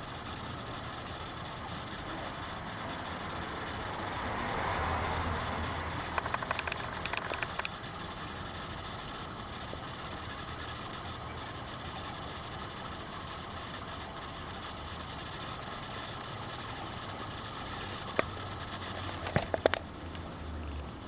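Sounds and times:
steady background hum: 0.0s - 21.0s
small clicks: 6.0s - 7.8s.

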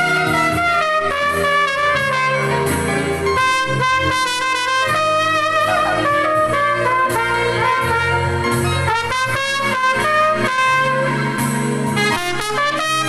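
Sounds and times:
recorded band accompaniment: 0.0s - 13.0s
trumpet playing melody: 0.0s - 13.0s.

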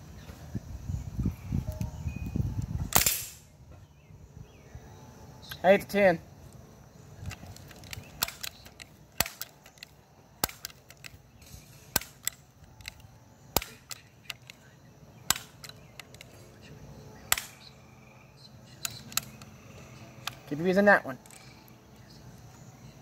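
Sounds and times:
air rifle pump clicks: 7.2s - 14.6s, 15.3s - 16.4s, 18.8s - 19.6s.

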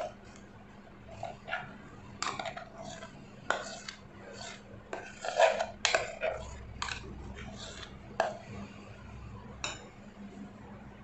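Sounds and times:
spoon scraping a jar: 1.1s - 8.6s.

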